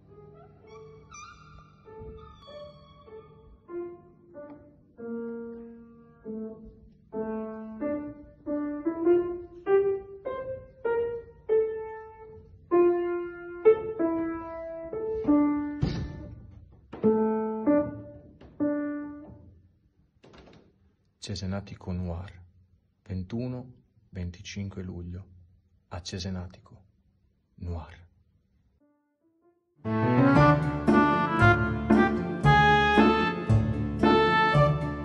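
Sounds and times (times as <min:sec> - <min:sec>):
slow piano melody: 0:00.0 - 0:19.6, 0:29.9 - 0:35.0.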